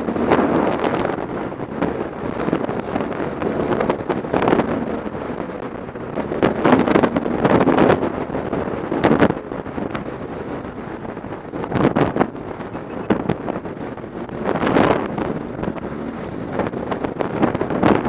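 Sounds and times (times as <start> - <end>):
motorcycle engine running: 0.0 - 18.0
wind buffeting microphone: 0.0 - 18.0.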